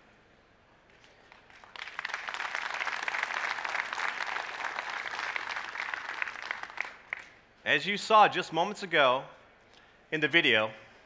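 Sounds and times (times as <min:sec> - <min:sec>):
audience applauding: 0:01.3 - 0:07.4.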